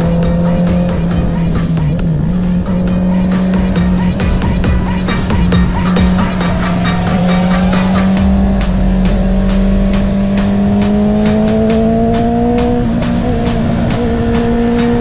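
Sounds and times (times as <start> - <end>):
motorcycle engine accelerating: 0.0 - 15.0.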